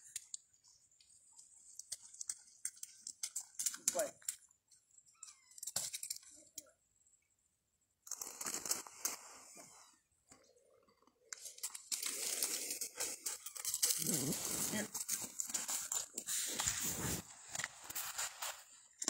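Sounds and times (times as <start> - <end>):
leaves crunching underfoot: 14.0 - 15.0.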